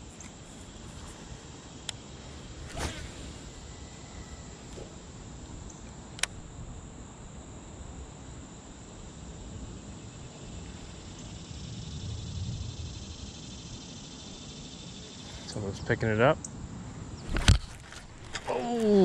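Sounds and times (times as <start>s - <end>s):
insects trilling: 0.0s - 19.0s
sharp click: 6.2s - 6.4s.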